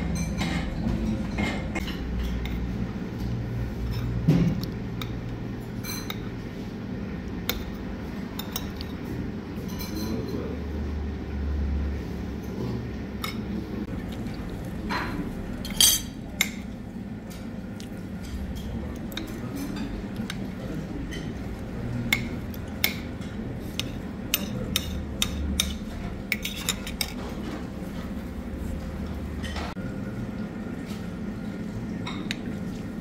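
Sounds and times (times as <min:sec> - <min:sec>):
low background hum: 0:00.0 - 0:33.0
cutlery clinking on ceramic plate: 0:15.7 - 0:16.2.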